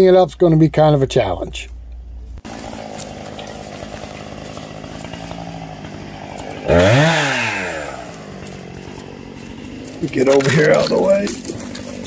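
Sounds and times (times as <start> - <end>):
chainsaw idling and revving: 2.4 - 12.0.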